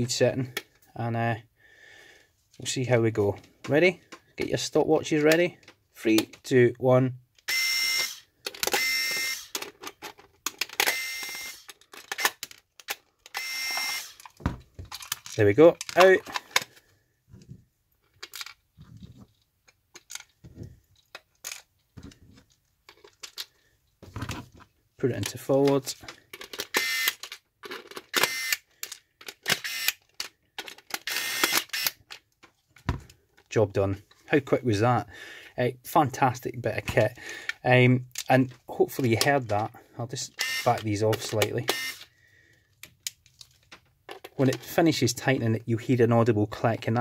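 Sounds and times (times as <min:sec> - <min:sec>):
electric screwdriver whirring: 0:07.5 - 0:09.6, 0:10.8 - 0:12.4, 0:13.3 - 0:14.2, 0:26.7 - 0:27.2, 0:28.1 - 0:28.6, 0:29.5 - 0:30.0, 0:31.0 - 0:32.0, 0:40.4 - 0:40.7, 0:41.7 - 0:42.1
clicks and clatter of screws: 0:08.0 - 0:16.7, 0:18.0 - 0:18.6, 0:19.3 - 0:21.9, 0:22.9 - 0:23.6, 0:25.2 - 0:32.5
screwdriver clutch clicks: 0:10.6 - 0:14.4, 0:26.6 - 0:32.1, 0:41.6 - 0:42.1.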